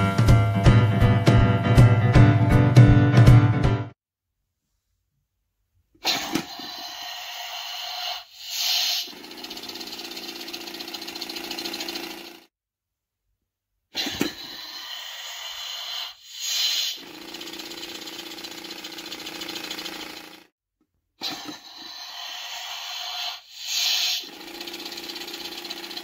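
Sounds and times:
buzzing rattle: 9.1 - 12.5, 17.0 - 20.5, 24.3 - 26.0.

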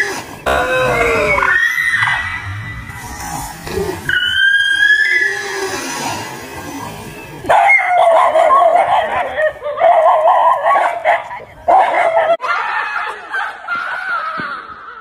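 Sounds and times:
people shouting and laughing: 0.5 - 5.6, 7.5 - 15.0
dogs barking and yelping: 7.4 - 14.4.

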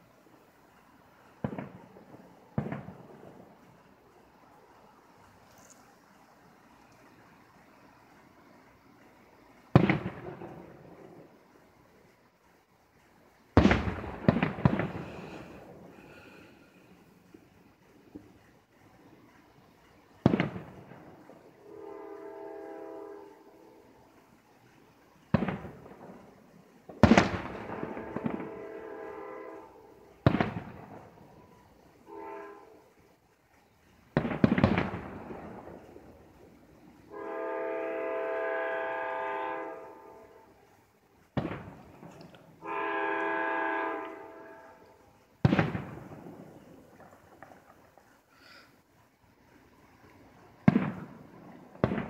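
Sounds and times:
fireworks bursting with bangs: 0.0 - 52.0
horn blasts: 21.6 - 23.9, 27.6 - 30.1, 31.4 - 32.9, 37.1 - 40.6, 42.6 - 45.0.

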